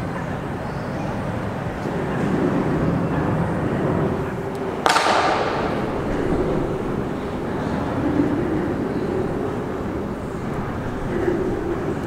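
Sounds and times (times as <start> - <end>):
highway traffic rumble: 0.0 - 12.0
sudden sharp crack: 4.8 - 7.0.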